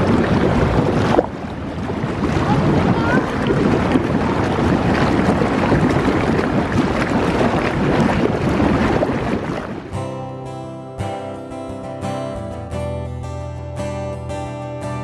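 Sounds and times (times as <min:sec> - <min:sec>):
wind on microphone: 0:00.0 - 0:10.1
pool water splashing: 0:00.0 - 0:14.7
acoustic guitar music: 0:09.8 - 0:15.0.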